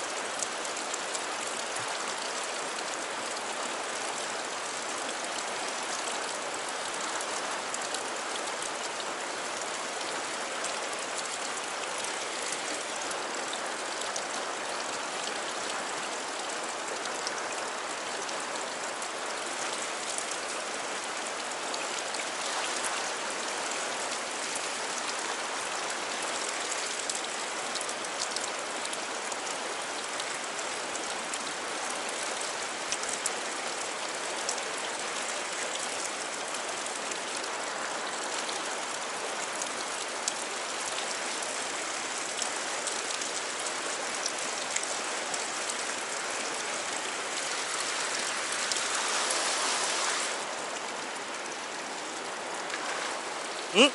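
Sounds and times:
river whitewater rushing: 0:19.0 - 0:27.0, 0:42.9 - 0:53.9.

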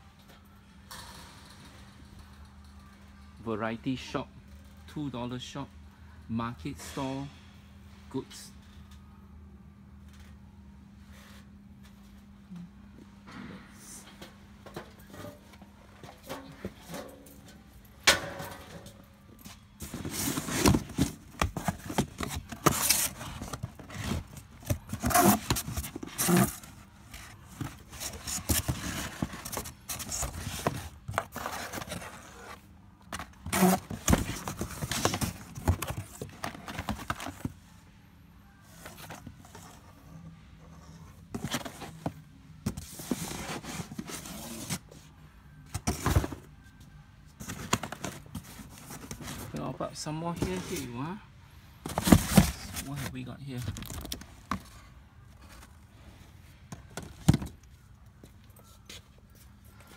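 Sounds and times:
rummaging through boxes and packaging: 0:13.3 - 0:59.9.

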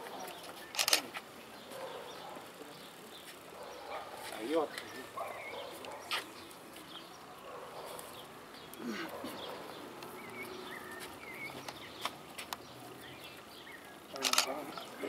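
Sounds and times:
bird chirps: 0:00.1 - 0:15.0
sharp click: 0:14.2 - 0:14.6.

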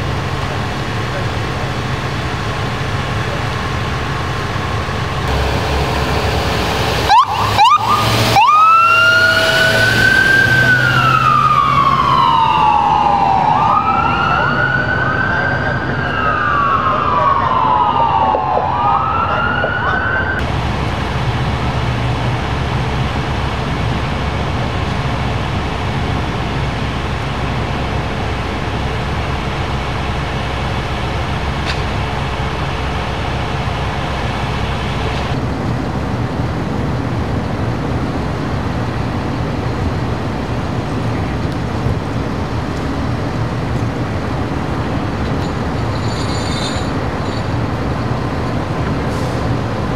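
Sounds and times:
diesel engine idling rumble: 0:00.0 - 0:08.5
fire engine siren wailing: 0:00.0 - 0:35.6.

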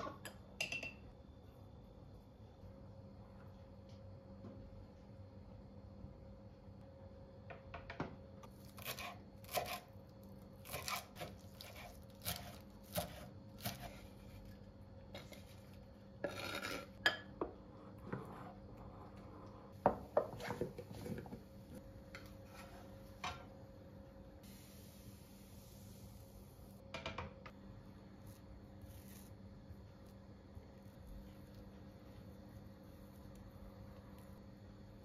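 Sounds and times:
faint steady hum: 0:00.0 - 0:35.0
utensil scraping: 0:15.2 - 0:17.0.

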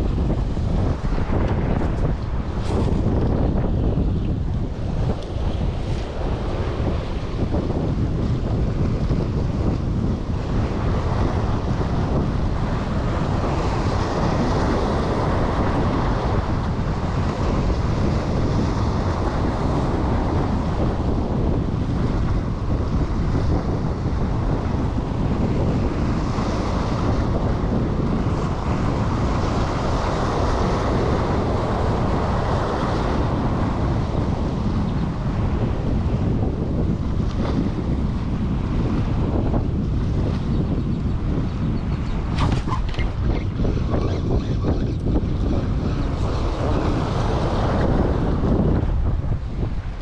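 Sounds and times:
wind buffeting microphone: 0:00.0 - 0:50.0
surf washing against rocks: 0:45.0 - 0:50.0.

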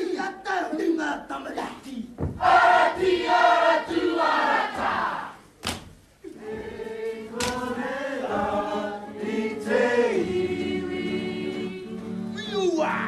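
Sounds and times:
group chanting in unison: 0:02.4 - 0:05.4, 0:06.2 - 0:11.9
sharp cracks: 0:05.6 - 0:06.0
men and women singing held notes: 0:06.3 - 0:12.1.

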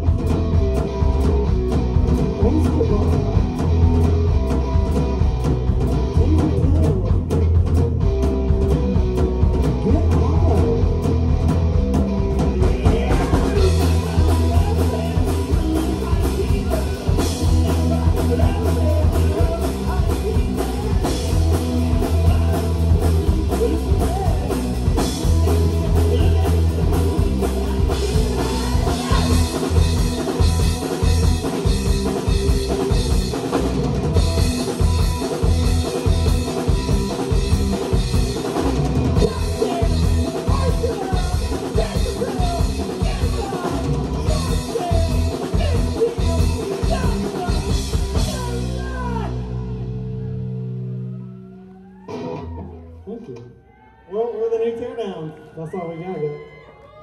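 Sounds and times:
live rock band playing: 0:00.0 - 0:53.5
person singing: 0:12.4 - 0:32.2, 0:39.0 - 0:49.8.

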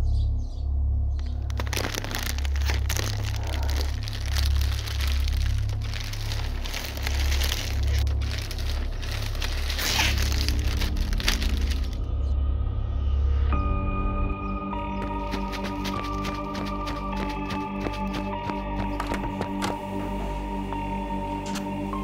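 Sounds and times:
low pulsing music drone: 0:00.0 - 0:22.0
plastic bag crinkling: 0:01.2 - 0:12.0, 0:15.0 - 0:19.8.

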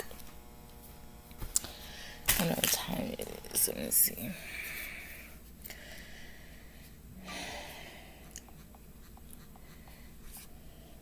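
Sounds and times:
person breathing out: 0:04.5 - 0:08.4.

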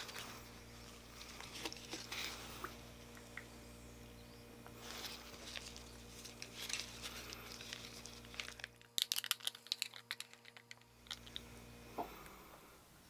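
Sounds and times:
plastic tub crinkling: 0:00.0 - 0:02.8, 0:04.8 - 0:11.5.

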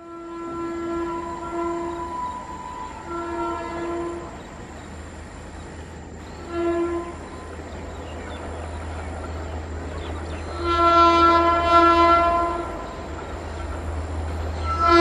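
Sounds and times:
locomotive air horn blasts: 0:00.0 - 0:04.4, 0:06.4 - 0:07.5, 0:10.5 - 0:13.1, 0:14.5 - 0:15.0.

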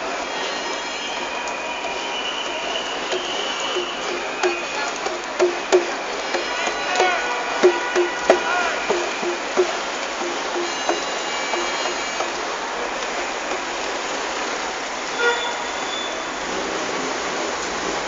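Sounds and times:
passing traffic: 0:00.0 - 0:18.0.

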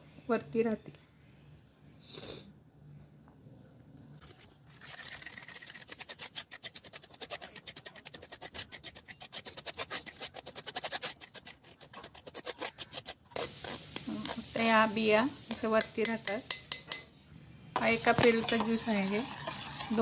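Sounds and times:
spoon scraping metal strainer: 0:04.2 - 0:17.0, 0:17.8 - 0:20.0.

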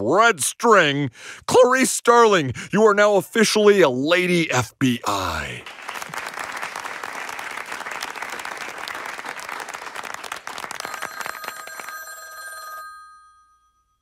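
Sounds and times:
audience applauding: 0:05.1 - 0:12.2
telephone ringing: 0:10.8 - 0:14.0.

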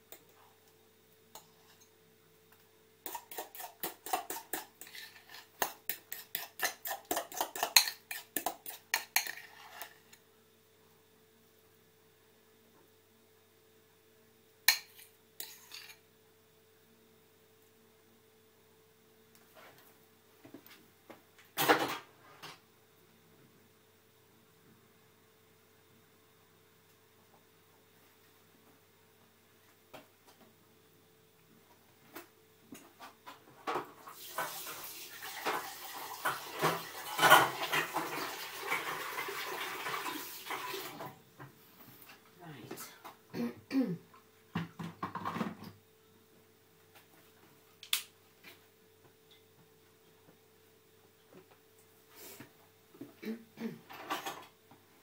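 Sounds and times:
faint steady hum: 0:00.0 - 0:55.0
water running and splashing: 0:34.1 - 0:41.1.

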